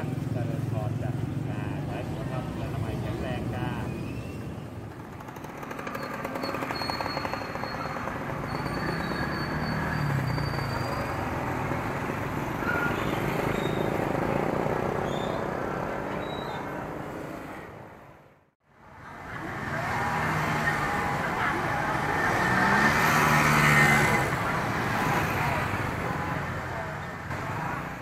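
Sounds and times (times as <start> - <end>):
passing motorbikes: 0.0 - 28.0
traffic: 0.0 - 28.0
fast rattling small engine: 4.9 - 11.7.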